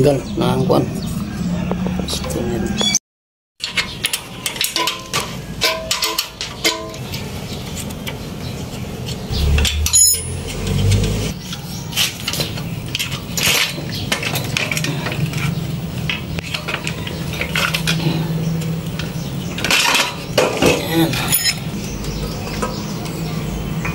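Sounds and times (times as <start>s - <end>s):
metal tools clinking on engine casing: 3.6s - 7.2s, 9.3s - 11.3s, 12.1s - 22.8s
low rumble: 9.3s - 11.4s.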